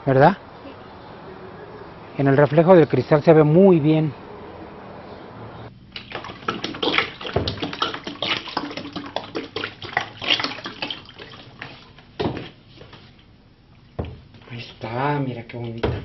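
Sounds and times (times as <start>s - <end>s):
liquid pouring and splashing: 6.0s - 12.6s.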